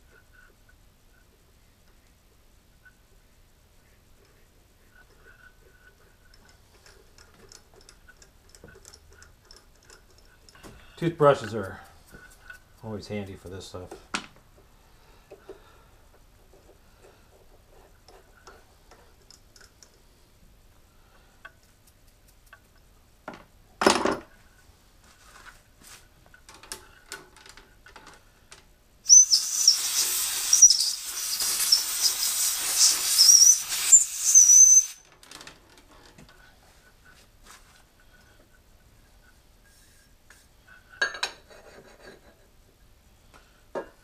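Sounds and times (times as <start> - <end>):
air hiss with wavering whistle: 29.1 - 35.0
compressed air blast: 29.1 - 35.0.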